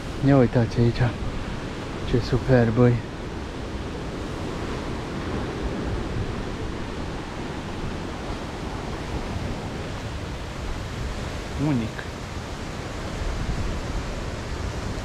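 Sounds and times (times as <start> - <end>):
sea surf washing against shore: 0.0 - 15.0.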